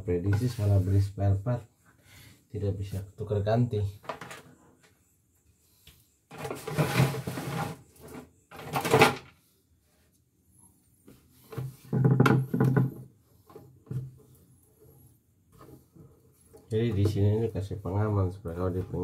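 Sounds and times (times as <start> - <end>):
plastic rustling and scraping: 6.3 - 9.3.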